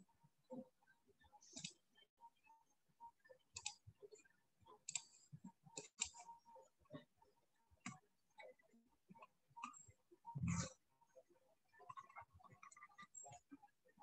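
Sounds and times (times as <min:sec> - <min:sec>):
faint clicks and taps: 0:00.5 - 0:01.9, 0:03.2 - 0:10.4.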